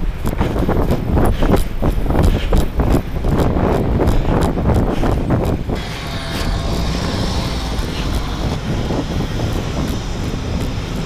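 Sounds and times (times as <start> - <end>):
city street traffic: 0.0 - 11.0
footsteps brisk walking: 0.0 - 11.0
large vehicle engine humming: 5.7 - 11.0.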